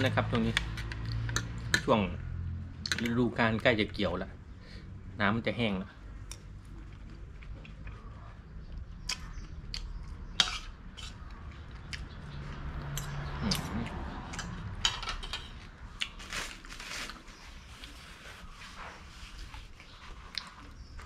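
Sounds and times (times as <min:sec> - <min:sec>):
chewing: 0:06.2 - 0:14.6, 0:17.8 - 0:21.0.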